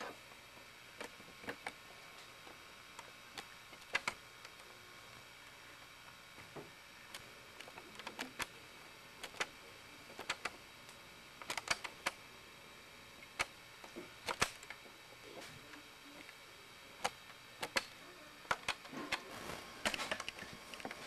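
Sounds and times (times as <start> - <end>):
tape hiss: 0.0 - 21.0
sharp clicks and pops: 10.2 - 12.2, 13.3 - 14.8, 17.0 - 21.0.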